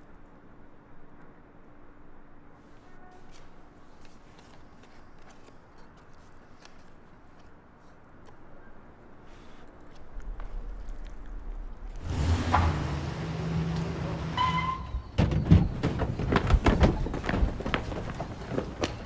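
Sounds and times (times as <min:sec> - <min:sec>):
low hum: 0:09.6 - 0:16.6
sharp thuds and knocks: 0:15.1 - 0:19.0.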